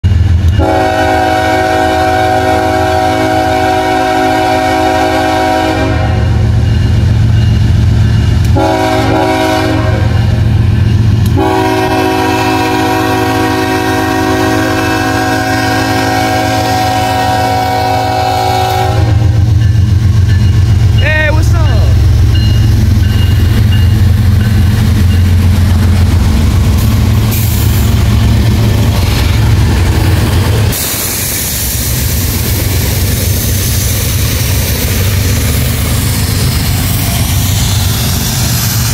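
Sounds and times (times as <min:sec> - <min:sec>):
low locomotive rumble: 0:00.0 - 0:38.9
locomotive air horn blasts: 0:00.6 - 0:06.5, 0:08.5 - 0:10.3, 0:11.3 - 0:19.4.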